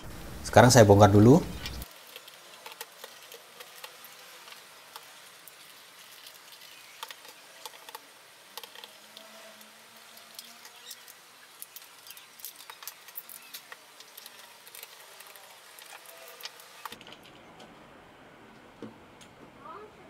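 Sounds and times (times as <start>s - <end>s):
plastic clicks and scratches: 1.6s - 5.1s, 6.2s - 9.7s.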